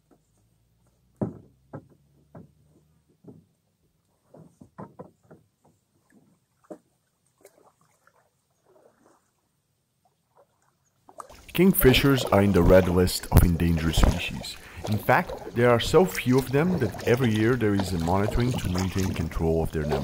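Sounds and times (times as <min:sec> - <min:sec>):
kayak hull and paddle bumping: 0:00.0 - 0:07.0, 0:11.0 - 0:20.0.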